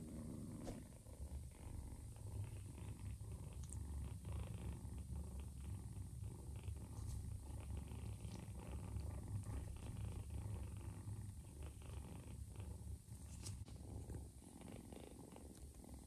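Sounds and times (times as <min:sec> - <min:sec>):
cat purring: 0:00.0 - 0:16.0.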